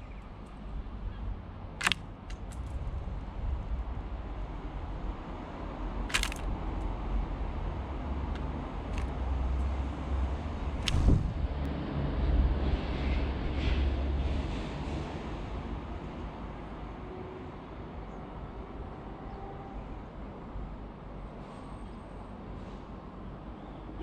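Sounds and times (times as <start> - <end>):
wind rumble on microphone: 2.4 - 16.9.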